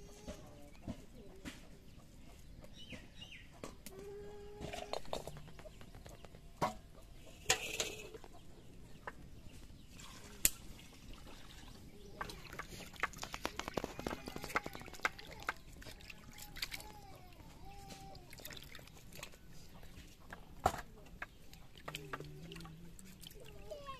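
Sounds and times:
hens clucking: 0.0s - 9.8s
steel bowl clinking: 7.4s - 8.2s
hands sloshing in water: 9.9s - 20.5s.

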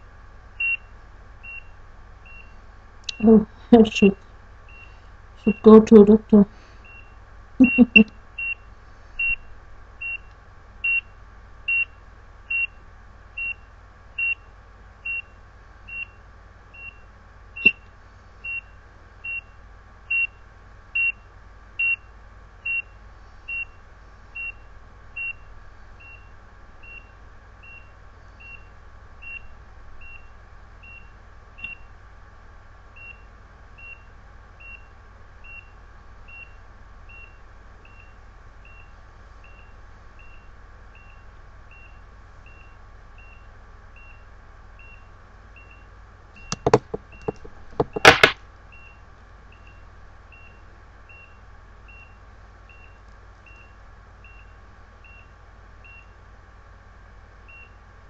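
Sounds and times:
heart monitor beeping: 5.5s - 8.6s, 46.4s - 49.0s
click: 31.6s - 31.8s.

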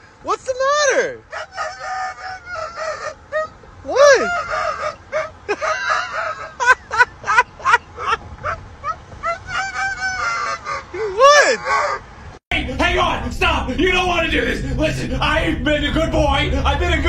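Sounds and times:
dog howling: 1.3s - 5.4s, 9.4s - 12.0s.

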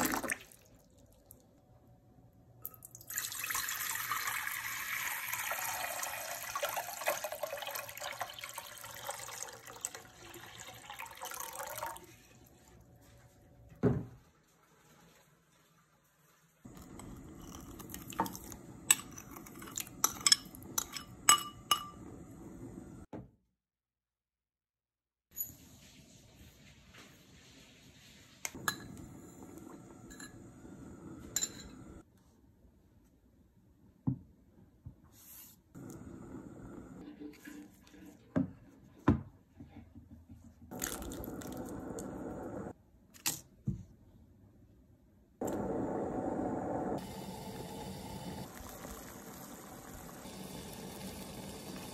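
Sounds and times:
spoon clinking on ceramic bowl: 18.2s - 22.0s, 31.4s - 31.8s
gas burner rushing: 40.8s - 42.8s, 45.4s - 51.9s.

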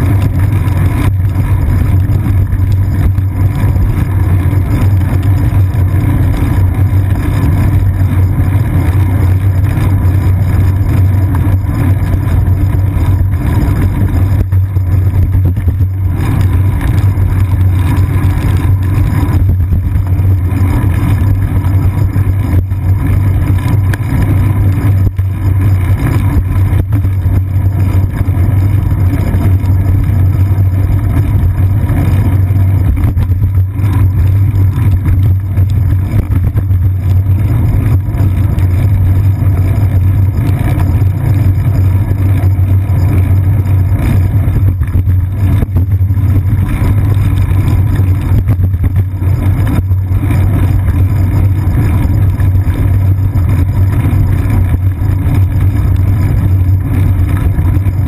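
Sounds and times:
bicycle rumbling over wet pavement: 0.0s - 58.0s.

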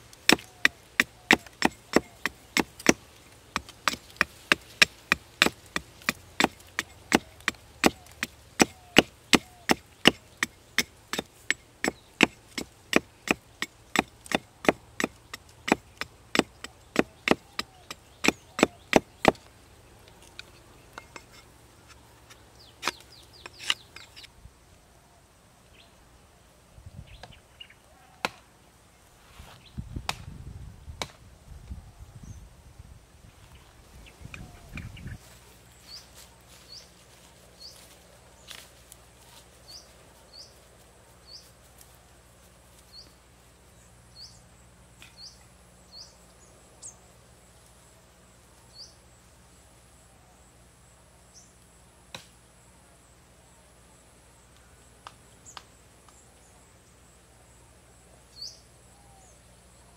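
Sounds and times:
hatchet chopping a log: 0.1s - 19.5s, 52.1s - 52.3s.

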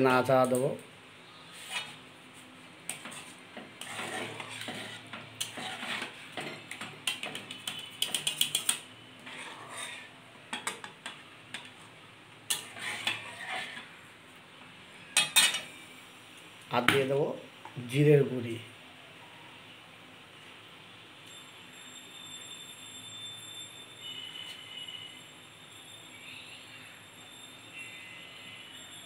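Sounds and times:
metal spatula scraping metal pan: 1.4s - 2.0s, 2.9s - 11.8s, 12.5s - 14.0s, 15.2s - 15.8s.

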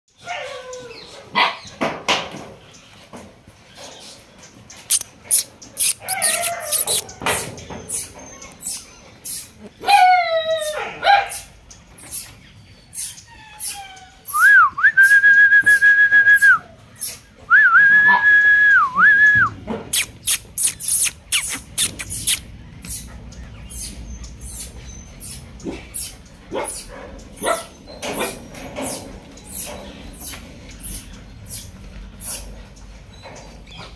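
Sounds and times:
person whistling: 14.3s - 16.6s, 17.5s - 19.5s.

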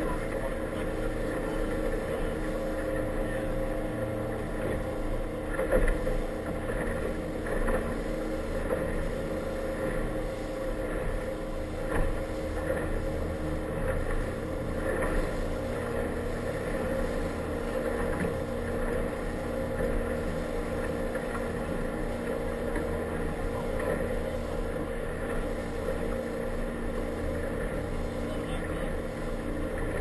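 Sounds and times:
motorboat engine running: 0.0s - 30.0s
water rushing along hull: 0.0s - 30.0s.

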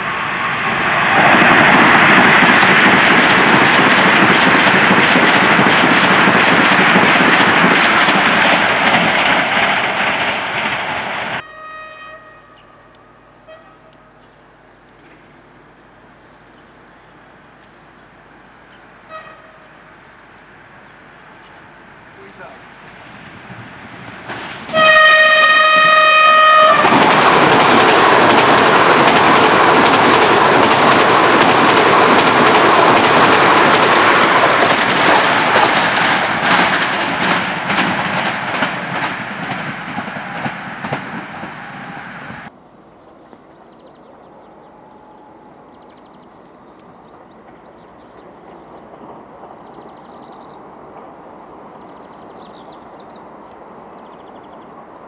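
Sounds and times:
train wheels rolling: 0.0s - 11.4s, 22.4s - 42.5s
clickety-clack over rail joints: 1.2s - 11.4s, 23.5s - 41.6s, 47.1s - 49.9s
electric train horn blast: 11.4s - 14.2s, 19.0s - 19.8s, 24.7s - 27.0s.

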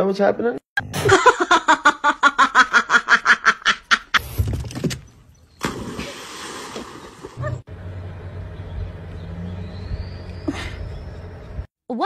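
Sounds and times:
person laughing: 0.9s - 4.2s, 7.2s - 7.6s, 10.4s - 11.0s.

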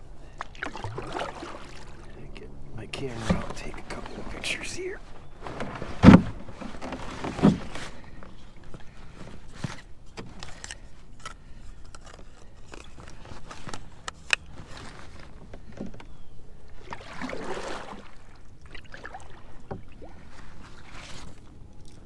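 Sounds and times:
water sloshing and dripping: 0.2s - 4.4s, 16.7s - 22.0s
clicks and knocks on canoe: 5.4s - 16.2s.

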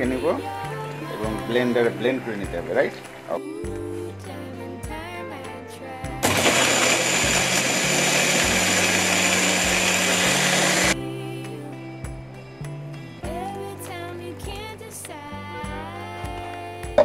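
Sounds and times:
soft background music: 0.0s - 10.2s, 10.8s - 17.0s
blender running: 6.2s - 11.0s.

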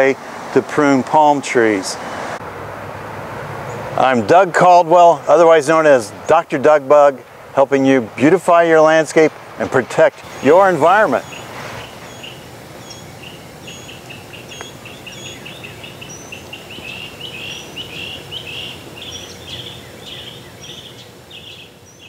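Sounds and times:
birds chirping: 3.6s - 4.3s, 8.8s - 22.0s.

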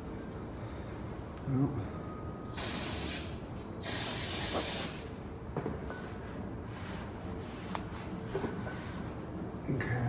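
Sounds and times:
aerosol spray hissing: 2.6s - 5.0s.

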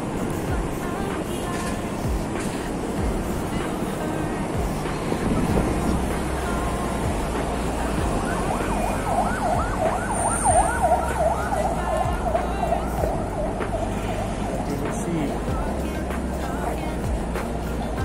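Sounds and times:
low traffic rumble: 0.0s - 18.0s
emergency siren yelping: 7.8s - 15.0s.

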